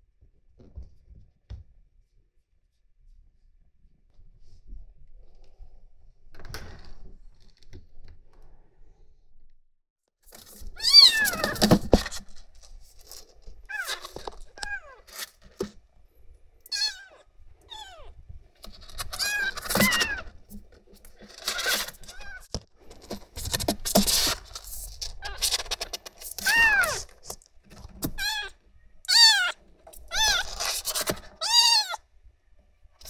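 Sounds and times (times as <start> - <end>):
kitten mewing: 10.7 - 11.7, 16.7 - 18.2, 25.2 - 27.1, 28.0 - 32.0.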